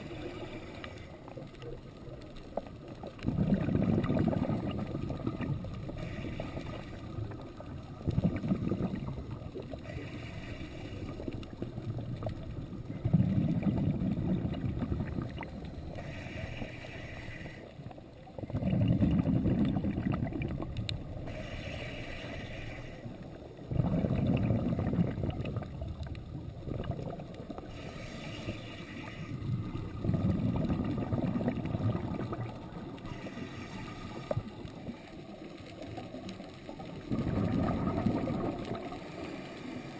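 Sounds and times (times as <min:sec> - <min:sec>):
regulator inhale hiss: 0:00.0 - 0:01.4, 0:05.9 - 0:07.7, 0:09.6 - 0:11.7, 0:15.8 - 0:18.0, 0:21.1 - 0:23.5, 0:27.6 - 0:30.0, 0:32.7 - 0:35.4, 0:38.8 - 0:39.9
exhaled bubbles rumbling: 0:00.0 - 0:16.4, 0:17.9 - 0:22.0, 0:23.2 - 0:39.2.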